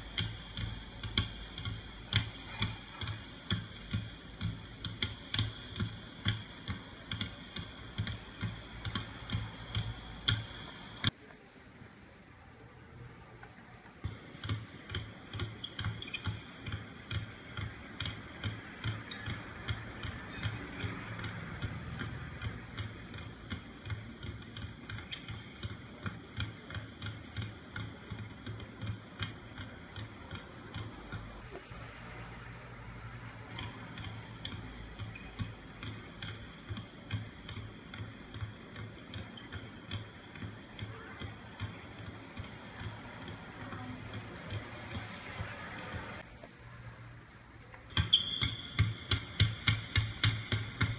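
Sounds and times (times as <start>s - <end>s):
basketballs bouncing on wooden floor: 0.1s - 11.2s, 14.0s - 31.6s, 33.4s - 46.2s, 47.9s - 50.9s.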